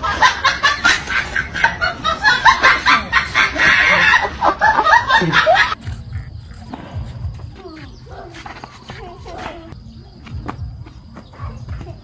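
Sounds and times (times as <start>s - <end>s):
person giggling: 2.4s - 6.3s.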